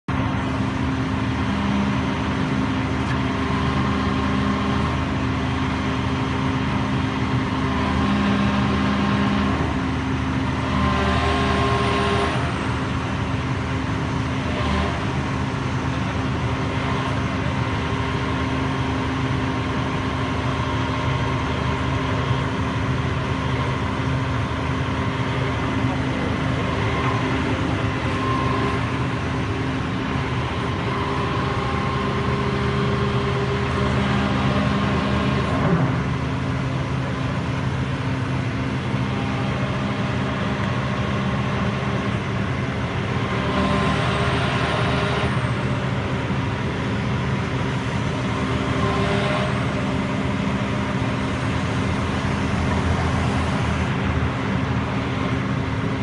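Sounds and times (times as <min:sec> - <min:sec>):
excavator diesel engine running: 0:00.1 - 0:56.0
hydraulic pump whine: 0:00.1 - 0:56.0.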